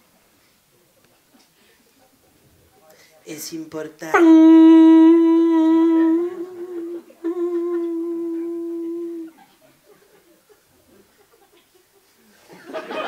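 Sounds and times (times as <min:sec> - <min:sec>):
woman humming a steady note: 0:04.1 - 0:09.4.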